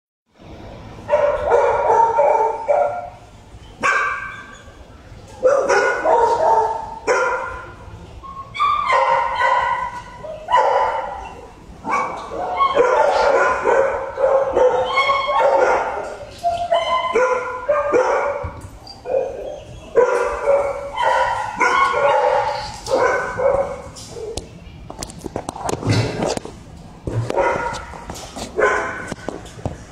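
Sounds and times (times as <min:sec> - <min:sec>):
dog barking and baying: 0:01.1 - 0:03.1, 0:05.4 - 0:07.7, 0:08.6 - 0:24.4.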